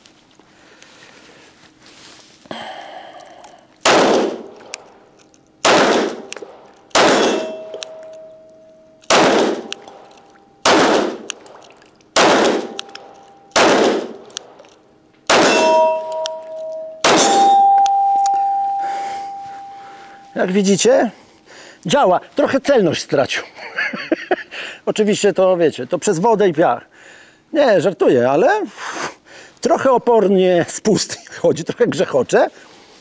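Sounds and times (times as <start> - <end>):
pistol shots: 3.8 - 4.8, 5.6 - 8.0, 9.1 - 11.5, 12.2 - 14.6, 15.3 - 16.1, 17.0 - 17.6
steel targets ringing: 7.0 - 11.2, 12.4 - 14.2, 15.3 - 21.0.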